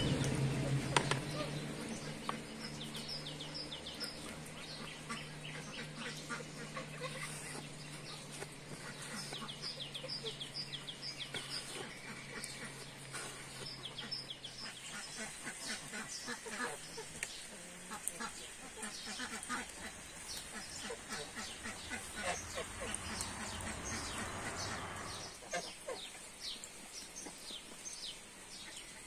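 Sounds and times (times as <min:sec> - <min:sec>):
chickens clucking: 0:00.0 - 0:26.3
small birds chirping: 0:00.0 - 0:29.0.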